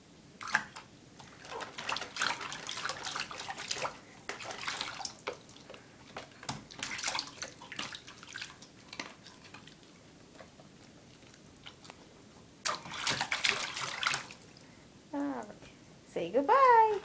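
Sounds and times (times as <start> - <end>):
water splashing in a metal bowl: 0.4 - 9.8, 12.6 - 14.6.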